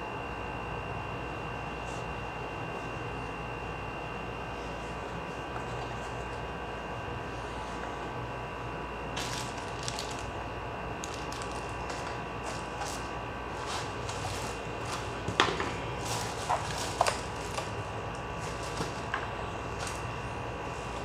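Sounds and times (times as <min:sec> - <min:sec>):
steady background hum: 0:00.0 - 0:21.0
plastic wrapping crinkling: 0:09.2 - 0:10.4, 0:11.0 - 0:20.1.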